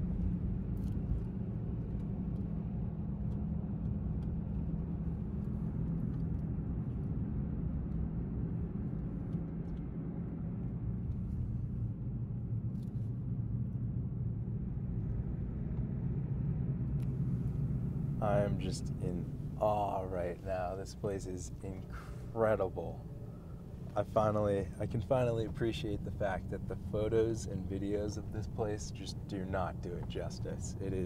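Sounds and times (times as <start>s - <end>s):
truck engine rumble from cab: 8.5s - 31.0s
tyre noise on road: 17.0s - 31.0s.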